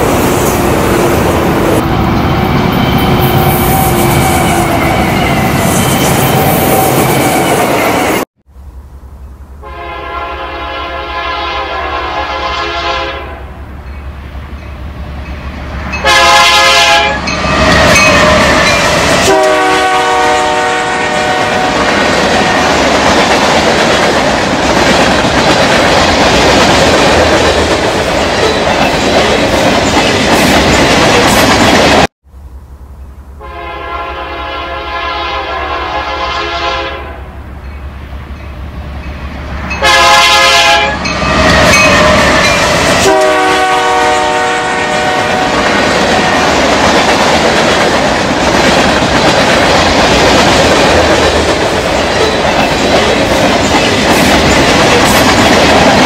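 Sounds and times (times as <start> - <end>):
train horn blasts: 9.6 - 13.6, 16.0 - 17.4, 19.2 - 21.9, 33.4 - 37.4, 39.7 - 45.6
train wheels rumbling: 13.5 - 34.8, 37.3 - 56.0.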